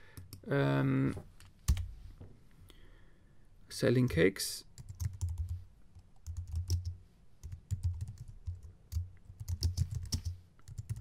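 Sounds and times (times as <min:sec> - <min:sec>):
keyboard typing: 0:04.8 - 0:11.0.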